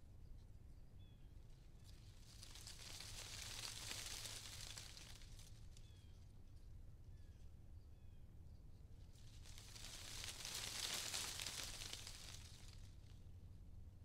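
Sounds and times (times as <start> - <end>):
rustling of tree leaves: 1.1 - 7.4, 8.7 - 13.6.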